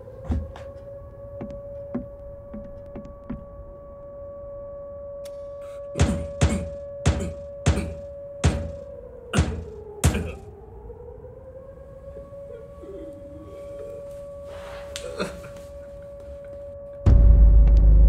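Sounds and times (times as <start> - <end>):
low humming drone: 0.0 - 18.0
heavy thuds: 6.0 - 10.4.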